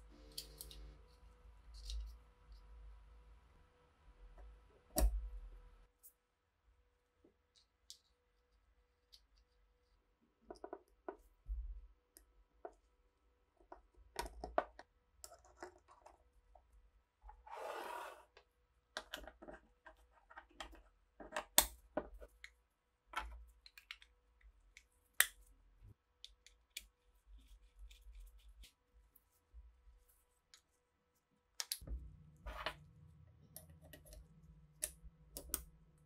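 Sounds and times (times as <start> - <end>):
metal scraping across wooden table: 17.4 - 18.3.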